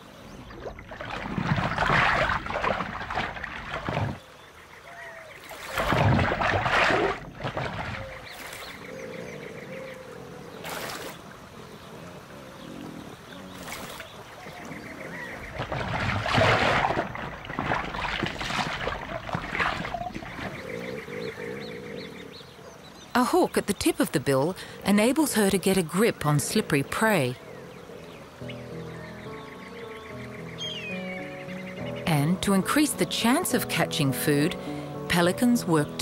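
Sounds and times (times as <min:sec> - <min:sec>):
water splashing: 0:00.0 - 0:08.9, 0:10.6 - 0:11.5, 0:13.2 - 0:20.9.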